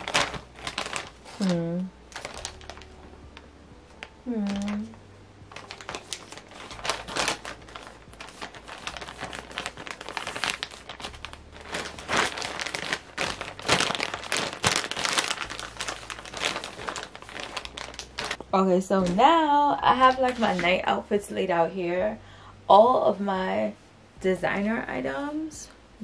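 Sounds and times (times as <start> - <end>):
plastic bag crinkling: 0.0 - 3.1, 4.0 - 18.4, 19.9 - 20.9.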